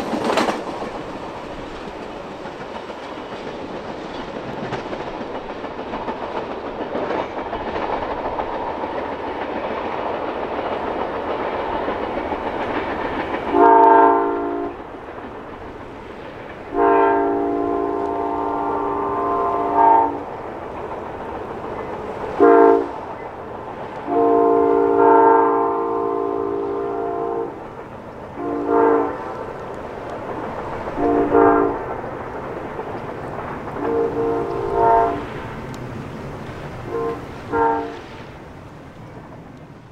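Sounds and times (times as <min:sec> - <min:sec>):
train cars rumbling over rails: 0:00.0 - 0:39.9
distant locomotive chime horn: 0:13.5 - 0:14.8, 0:16.7 - 0:20.3, 0:22.3 - 0:23.0, 0:24.0 - 0:27.6, 0:28.4 - 0:29.2, 0:30.9 - 0:31.9, 0:33.8 - 0:35.6, 0:36.8 - 0:38.2.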